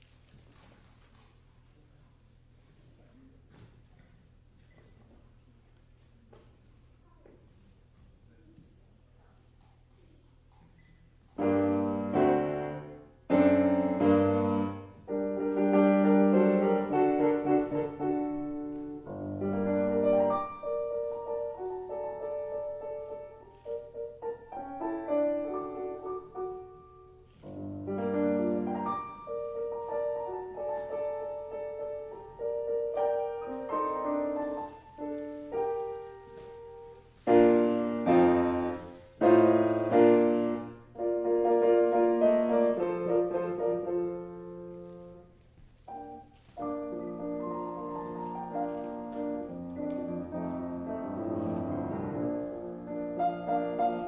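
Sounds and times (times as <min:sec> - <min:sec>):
grand piano playing: 0:11.3 - 0:54.0.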